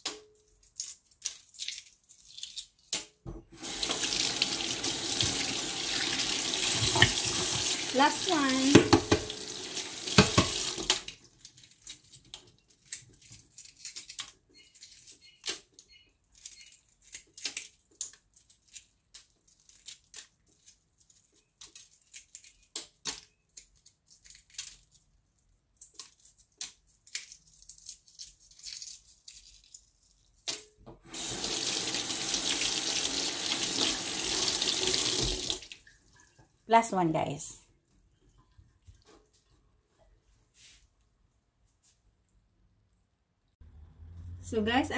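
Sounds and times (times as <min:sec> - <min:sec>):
egg shell crackling as peeled: 0:00.4 - 0:03.2, 0:10.8 - 0:30.6
tap running into metal sink: 0:05.0 - 0:07.8, 0:08.7 - 0:09.4, 0:10.0 - 0:11.0.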